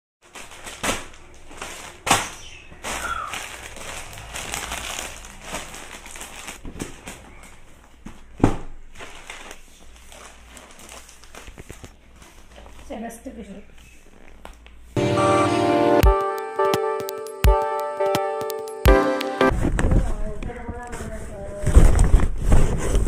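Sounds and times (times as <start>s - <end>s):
plastic and paper crinkling: 0.2s - 8.3s, 8.9s - 13.1s.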